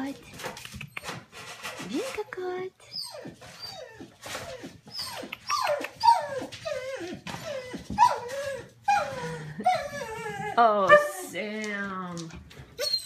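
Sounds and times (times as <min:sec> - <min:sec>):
puppies whimpering and yelping: 0:02.8 - 0:10.8, 0:12.7 - 0:13.0.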